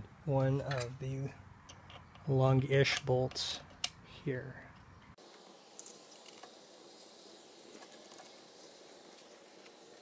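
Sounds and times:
steady low hiss: 0:00.0 - 0:10.0
metallic clicks of bolts: 0:01.7 - 0:04.0.

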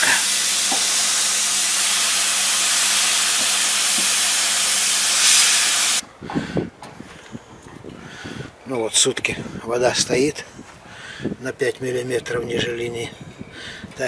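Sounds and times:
hot-air welding gun hissing: 0:00.0 - 0:06.0.

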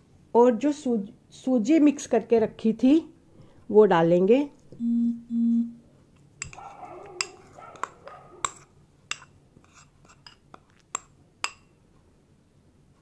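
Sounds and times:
spoon scraping paste: 0:06.4 - 0:11.2.

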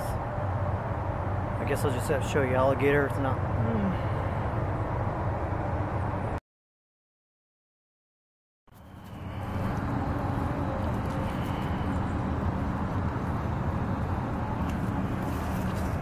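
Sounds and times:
deep outdoor rumble: 0:08.7 - 0:16.0.

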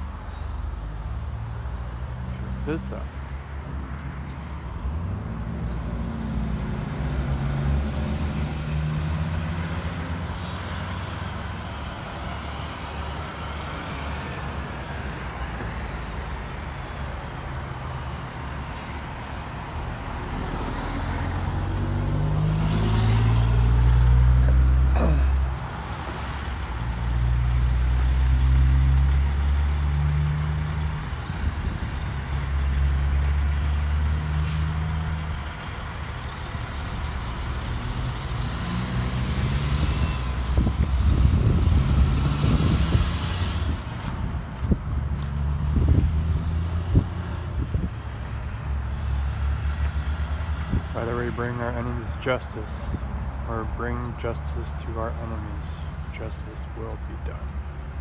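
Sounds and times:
traffic rumble: 0:00.0 - 0:58.0
truck engine accelerating: 0:04.8 - 0:16.6, 0:20.1 - 0:52.8.

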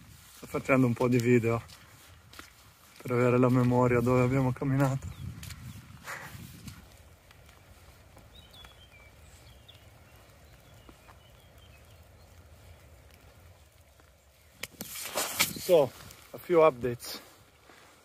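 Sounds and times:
low wind rumble: 0:00.0 - 0:18.0
faint high bird chirps: 0:08.3 - 0:12.7.

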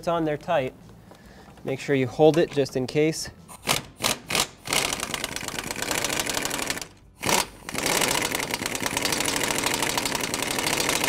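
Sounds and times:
air impact wrench hammering: 0:03.5 - 0:11.0.

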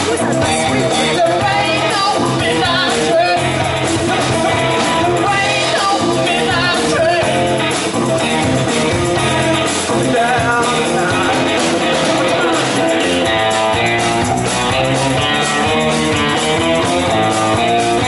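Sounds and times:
bass guitar: 0:00.0 - 0:18.0
drums: 0:00.0 - 0:18.0
electric guitar: 0:00.0 - 0:18.0
singing through pa: 0:10.0 - 0:13.5.

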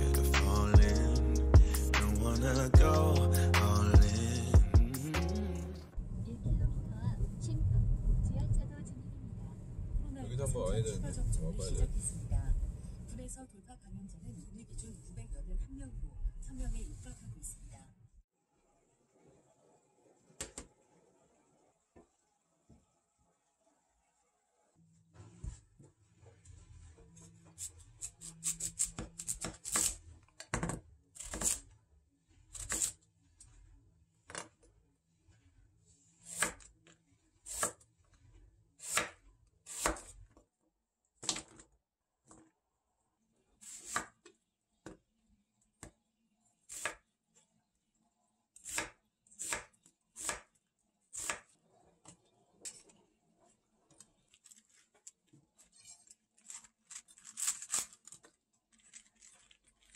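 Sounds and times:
knife chopping on wooden board: 0:36.3 - 0:36.6, 0:37.5 - 0:37.8, 0:38.8 - 0:40.1, 0:48.7 - 0:50.5.

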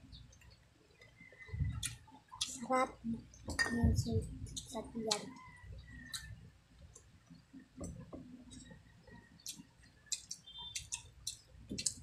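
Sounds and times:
people chewing wetly: 0:09.2 - 0:12.0.

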